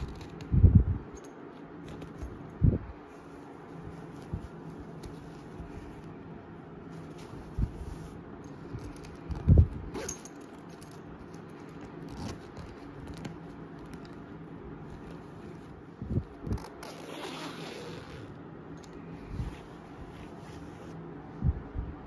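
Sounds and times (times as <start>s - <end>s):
zipper being pulled: 0.0s - 0.5s, 8.7s - 14.1s, 15.0s - 18.4s
fabric rustling: 0.0s - 21.6s.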